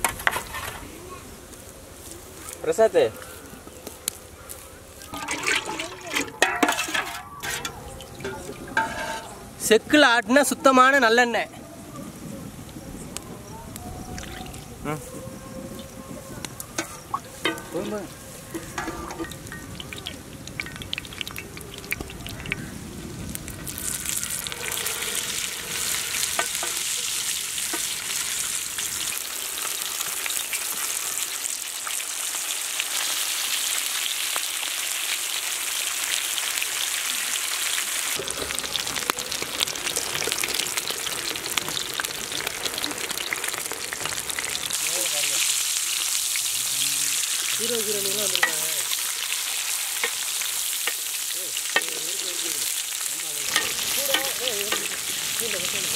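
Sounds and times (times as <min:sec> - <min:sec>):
metal spatula scraping pan: 0:00.0 - 0:00.9, 0:05.1 - 0:09.4, 0:16.8 - 0:19.4
oil crackling: 0:00.0 - 0:11.0, 0:15.8 - 0:55.9
fish sizzling in oil: 0:05.0 - 0:11.0, 0:16.7 - 0:55.9.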